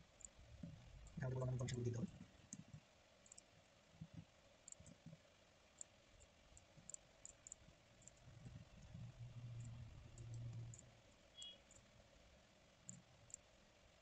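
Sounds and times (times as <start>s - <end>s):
keyboard and mouse clicks: 1.2s - 5.2s, 5.8s - 10.8s.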